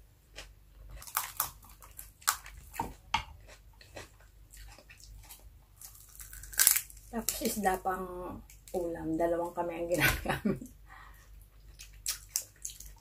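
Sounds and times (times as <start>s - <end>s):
person chewing and mouth smacks: 0.4s - 6.8s, 11.4s - 13.0s.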